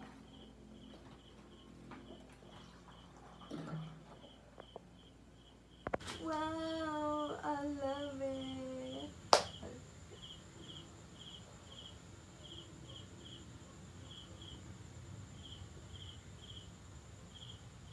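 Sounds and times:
crickets chirping: 0:00.0 - 0:17.9.

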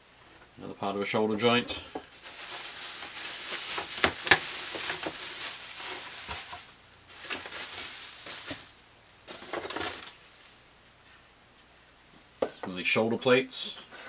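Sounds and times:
bubble wrap and plastic crinkling: 0:01.4 - 0:11.9.

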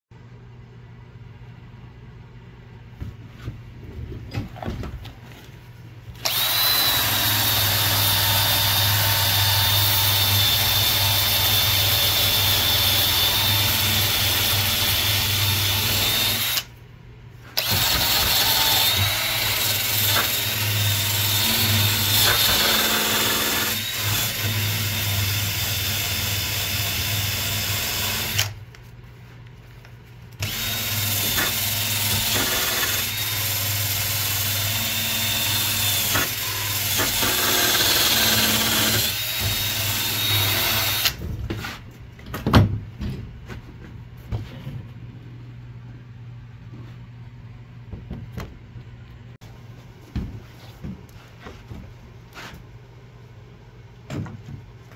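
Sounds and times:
drill motor whine: 0:06.2 - 0:16.7, 0:30.4 - 0:41.2.

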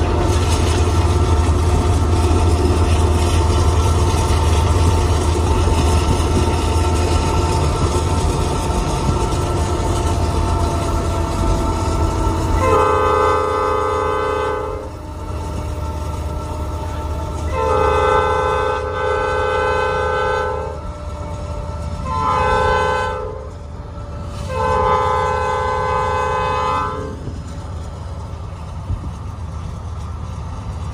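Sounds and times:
locomotive multi-note horn: 0:06.9 - 0:27.5.

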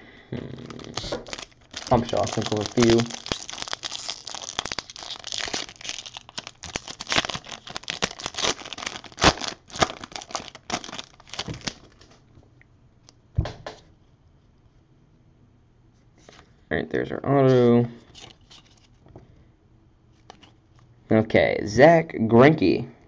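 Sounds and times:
plastic wrapper crinkling and tearing: 0:00.5 - 0:12.2, 0:18.1 - 0:19.0.

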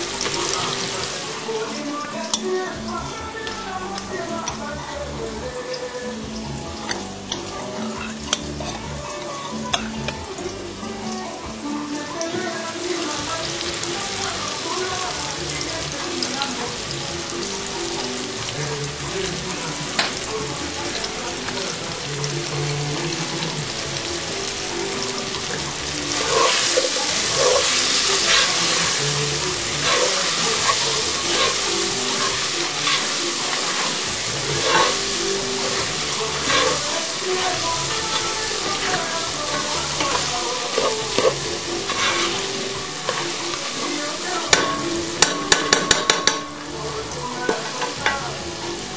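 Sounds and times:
food sizzling in hot oil: 0:00.0 - 0:48.9
utensil scraping a pan: 0:25.6 - 0:46.4.

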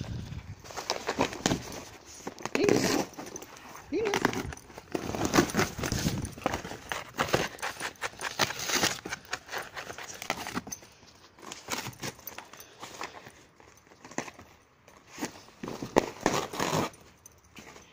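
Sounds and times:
dog chewing and ripping cardboard: 0:00.1 - 0:10.7, 0:15.1 - 0:17.1.

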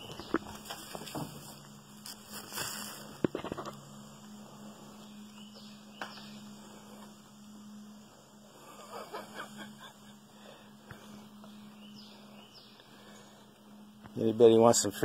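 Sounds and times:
scuffs on gravel: 0:00.0 - 0:03.2
faint steady hum: 0:00.0 - 0:15.0.

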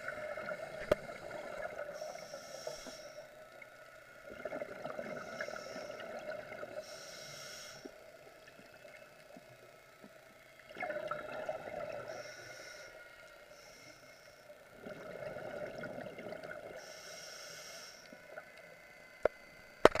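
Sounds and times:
regulator hissing inhalations: 0:01.0 - 0:03.5, 0:05.1 - 0:06.1, 0:06.8 - 0:08.2, 0:12.1 - 0:14.6, 0:16.8 - 0:18.3.

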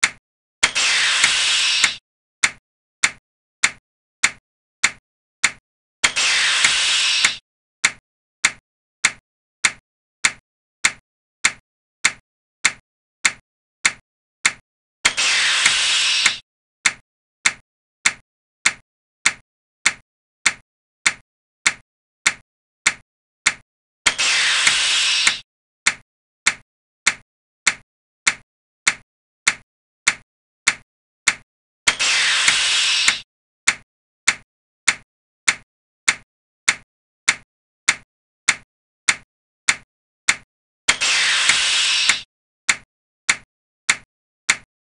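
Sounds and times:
sharp clicks: 0:00.0 - 0:44.7
hissing burst of noise: 0:00.7 - 0:02.0, 0:06.2 - 0:07.4, 0:15.2 - 0:16.4, 0:24.1 - 0:25.4, 0:32.0 - 0:33.2, 0:41.0 - 0:42.2.

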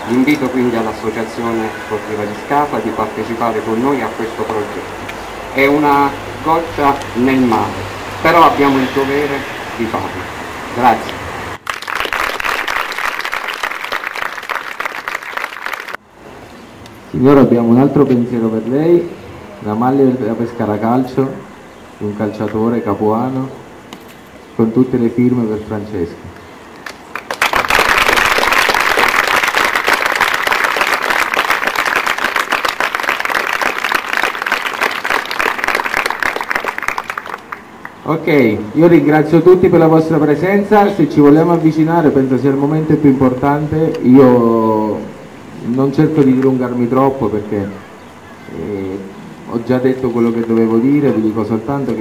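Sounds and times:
crowd applauding: 0:11.6 - 0:16.0, 0:26.8 - 0:38.0.

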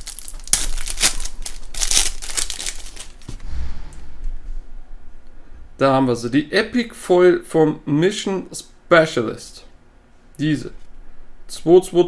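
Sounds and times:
foil wrapper tearing and crinkling: 0:00.0 - 0:03.3.

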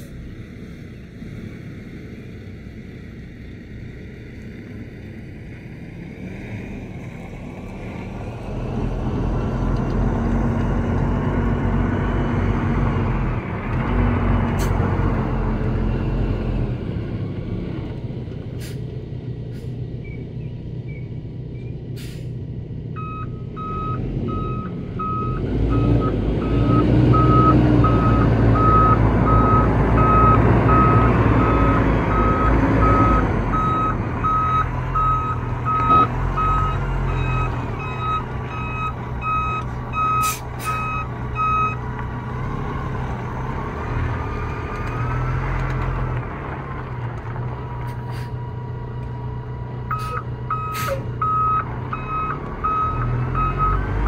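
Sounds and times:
truck diesel engine: 0:00.0 - 0:54.0
reversing alarm beeping: 0:23.0 - 0:41.8, 0:49.9 - 0:53.8.

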